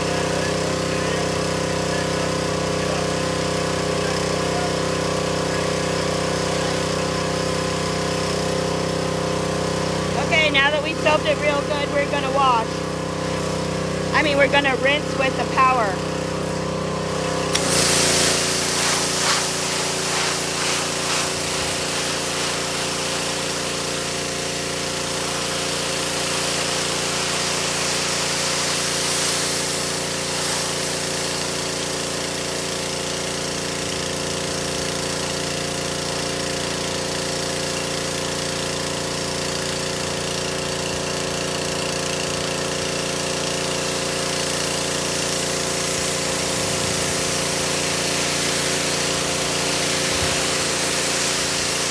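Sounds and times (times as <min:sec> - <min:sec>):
pressure washer running: 0:00.0 - 0:51.9
high-pressure spray hissing: 0:17.5 - 0:51.9.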